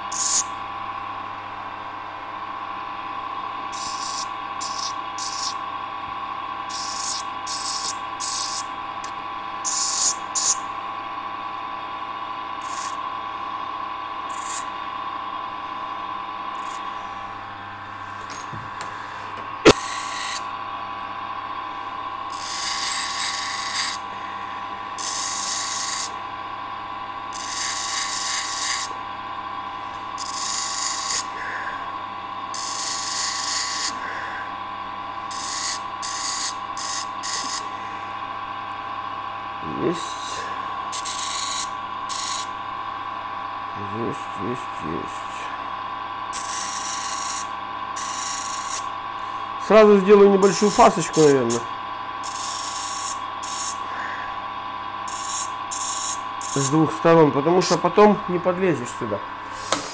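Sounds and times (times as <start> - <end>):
steady high hum: 0.0 - 59.9
tool hissing or scraping: 0.1 - 0.5, 3.7 - 5.6, 6.7 - 8.7, 9.6 - 10.6, 12.6 - 13.0, 14.3 - 14.7, 16.6 - 17.0, 18.1 - 20.5, 30.2 - 31.6, 32.6 - 34.1, 35.3 - 37.7, 40.0 - 42.5, 46.4 - 48.9, 50.4 - 54.2, 55.1 - 57.0, 59.4 - 59.9.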